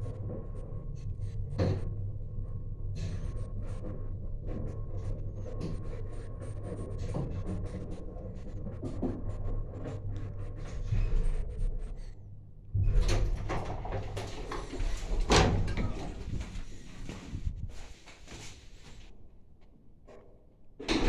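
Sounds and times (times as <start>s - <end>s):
sliding doors rattling open: 12.8s - 17.5s.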